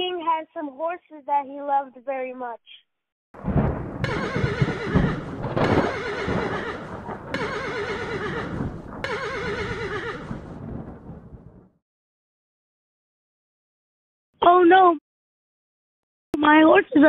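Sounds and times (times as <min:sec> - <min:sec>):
hoofbeats: 0:04.0 - 0:10.5
horses whinnying: 0:04.1 - 0:10.4.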